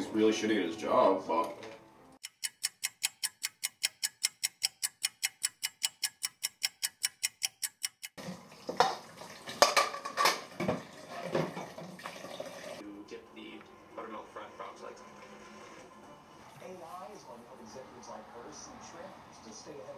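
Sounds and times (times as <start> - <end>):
clock ticking fast: 2.2 - 8.2
dishes and utensils clattering: 8.6 - 12.1.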